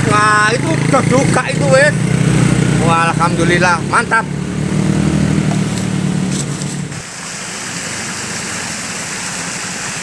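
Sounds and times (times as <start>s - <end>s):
engine running: 0.0s - 10.0s
stream water flowing: 3.8s - 10.0s.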